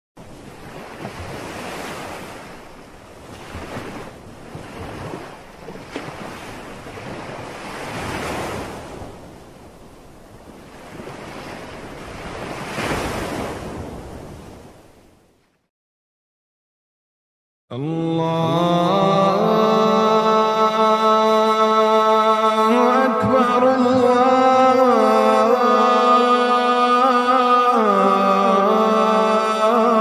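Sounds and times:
waves breaking on beach: 0:00.2 - 0:15.5.

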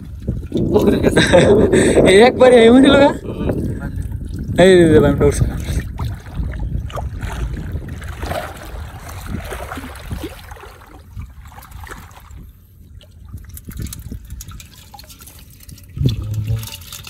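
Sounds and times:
shallow water splashing: 0:03.4 - 0:17.0.

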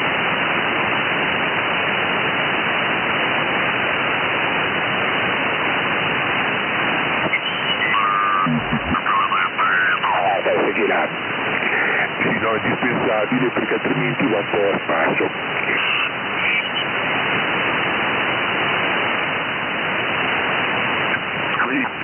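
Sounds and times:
radio receiver hiss: 0:06.0 - 0:22.0
wavering radio whistles: 0:07.2 - 0:10.6, 0:14.5 - 0:16.9
garbled radio voice: 0:07.2 - 0:17.0, 0:21.1 - 0:22.0.

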